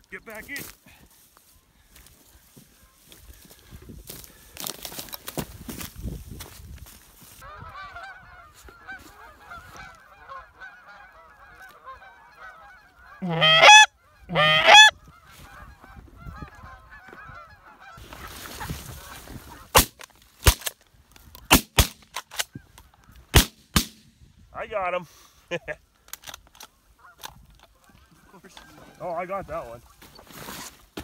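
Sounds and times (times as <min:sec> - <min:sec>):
geese honking: 0:07.4 - 0:19.8, 0:26.7 - 0:30.3
shotgun shots: 0:21.5 - 0:22.4, 0:23.3 - 0:24.1.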